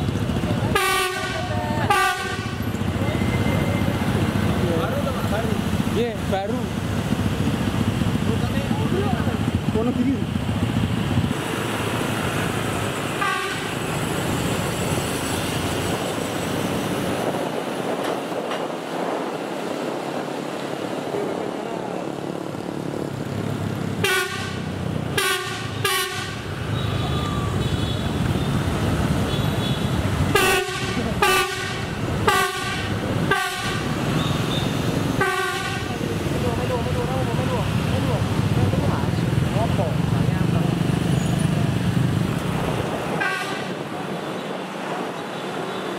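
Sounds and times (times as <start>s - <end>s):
train running noise: 0.0s - 45.9s
train horn blasts: 0.7s - 2.6s, 13.2s - 13.8s, 24.0s - 26.5s, 30.3s - 33.9s, 35.2s - 35.9s, 43.2s - 43.8s.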